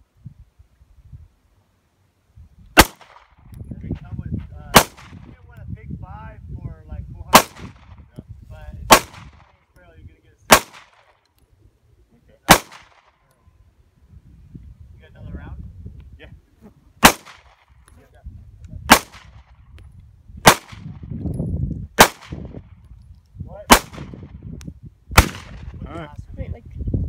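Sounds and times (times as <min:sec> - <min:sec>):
pistol shots: 0:02.8 - 0:03.3, 0:04.7 - 0:05.2, 0:07.3 - 0:07.9, 0:08.9 - 0:09.5, 0:10.5 - 0:11.2, 0:12.5 - 0:13.2, 0:17.0 - 0:17.7, 0:18.9 - 0:19.4, 0:20.4 - 0:21.0, 0:22.0 - 0:22.5, 0:23.7 - 0:24.2, 0:25.2 - 0:25.7.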